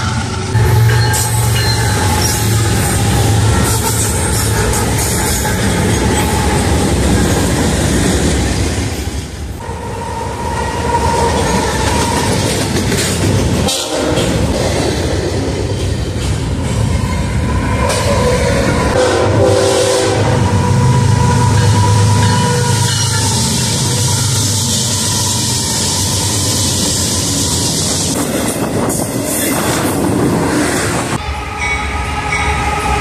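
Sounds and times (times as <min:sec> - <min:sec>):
freight train passing: 0:00.0 - 0:33.0
train horn: 0:00.5 - 0:06.8, 0:13.6 - 0:14.4, 0:18.8 - 0:26.2, 0:31.2 - 0:33.0
wagons clattering over rails: 0:11.0 - 0:17.0.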